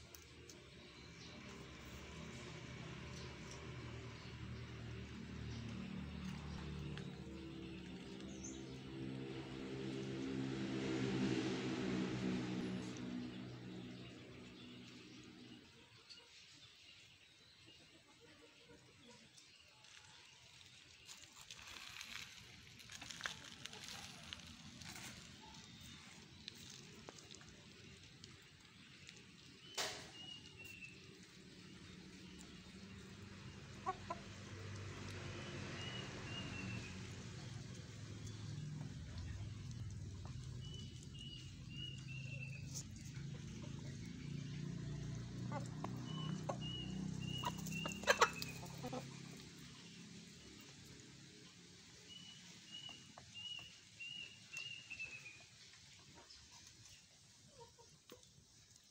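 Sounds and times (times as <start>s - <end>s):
chickens pecking wet mash: 17.8s - 58.9s
chickens clucking: 32.3s - 34.4s, 40.7s - 49.8s, 55.8s - 58.9s.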